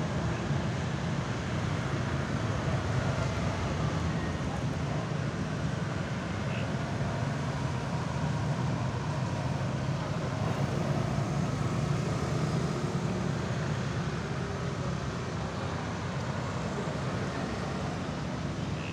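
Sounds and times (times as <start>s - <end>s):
motorcycles and cars driving: 0.0s - 18.9s
car passing: 5.6s - 18.9s.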